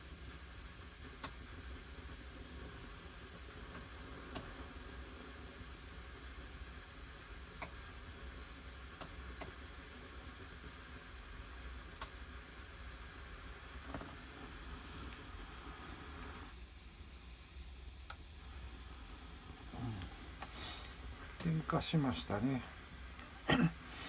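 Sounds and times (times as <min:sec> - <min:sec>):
camping stove hissing: 0:00.0 - 0:24.0
small sharp ticks: 0:12.0 - 0:12.2.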